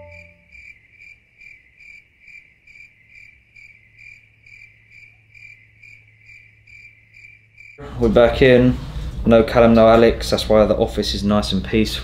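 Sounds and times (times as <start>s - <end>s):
low steady hum: 0.0s - 0.5s
cricket chirping: 0.0s - 7.8s.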